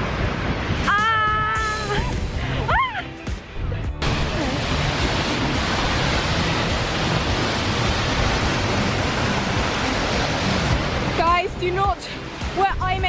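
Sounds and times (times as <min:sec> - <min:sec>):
waterfall roaring: 0:04.0 - 0:12.9.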